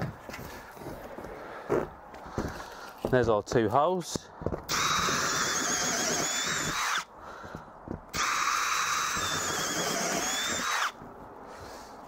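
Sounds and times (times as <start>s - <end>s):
cordless drill whining: 4.7s - 11.0s.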